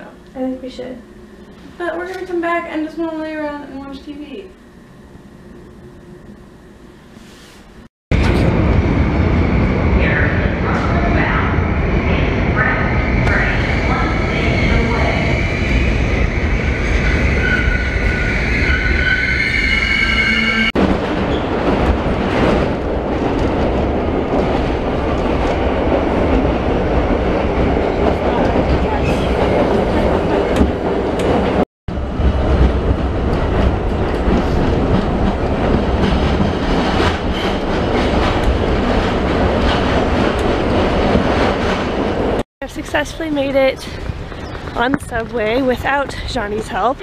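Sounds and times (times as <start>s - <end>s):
subway car rumble and rattle: 0.0s - 47.0s
train wheels squealing: 14.0s - 20.7s.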